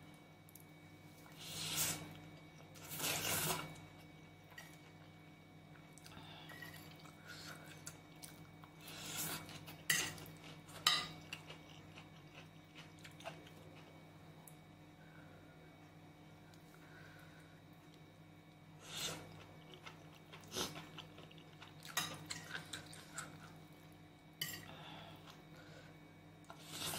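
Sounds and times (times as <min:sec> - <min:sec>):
soft chewing: 0:00.4 - 0:14.6, 0:17.8 - 0:24.0.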